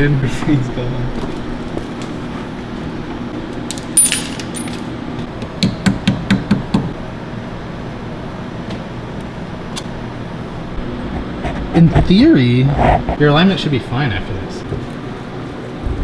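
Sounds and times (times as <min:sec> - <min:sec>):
metal tools clinking: 0:04.0 - 0:05.0
ringing metallic clatter: 0:04.0 - 0:05.0.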